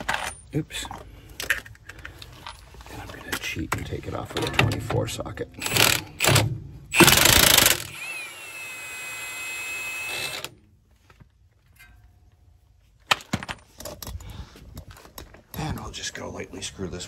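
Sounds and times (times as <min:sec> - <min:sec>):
impact wrench hammering: 0:05.6 - 0:08.3.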